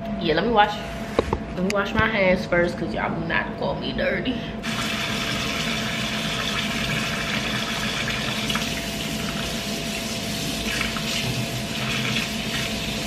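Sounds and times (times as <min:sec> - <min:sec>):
faucet running into sink: 0:04.7 - 0:09.6, 0:10.6 - 0:13.0
soapy hands rubbing: 0:08.4 - 0:13.0.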